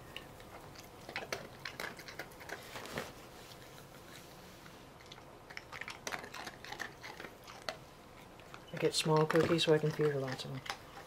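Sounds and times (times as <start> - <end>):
dog crunching biscuits: 0.2 - 4.3, 4.9 - 11.0.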